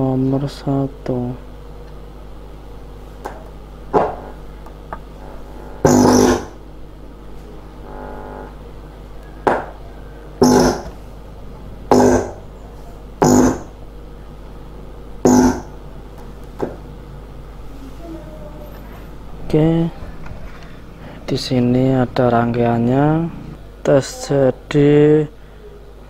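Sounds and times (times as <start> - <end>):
low mains hum: 0.0 - 26.0
loudspeaker buzzes and crackles: 3.7 - 9.2, 10.3 - 14.0, 15.1 - 16.1.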